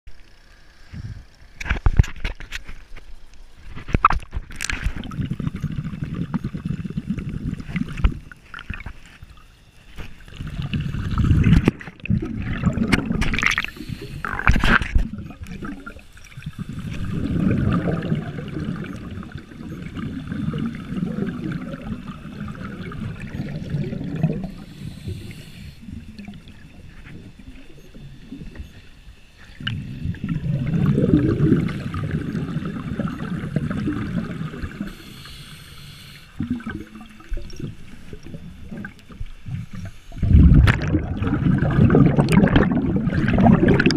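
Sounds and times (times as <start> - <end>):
scuba regulator breathing bubbles: 10.3 - 28.5, 29.4 - 43.9.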